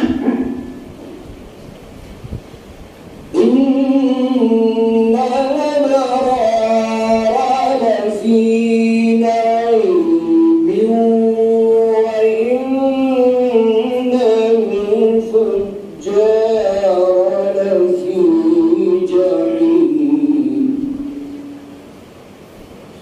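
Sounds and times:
man chanting recitation: 3.3s - 21.5s.

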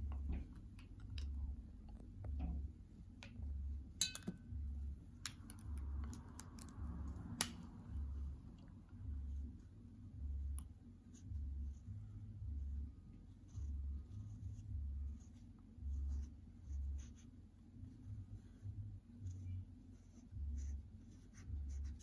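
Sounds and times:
marker caps clicking: 5.2s - 7.6s.

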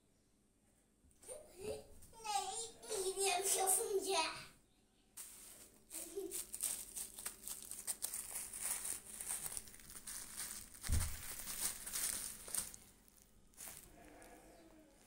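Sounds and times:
bubble wrap crinkling: 5.2s - 15.0s.

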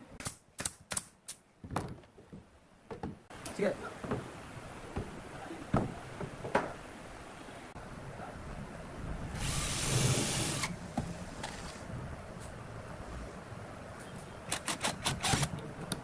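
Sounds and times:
wood knocking on workbench: 1.6s - 3.2s, 4.0s - 4.3s, 5.0s - 6.8s
cordless drill boring wood: 14.7s - 15.5s.

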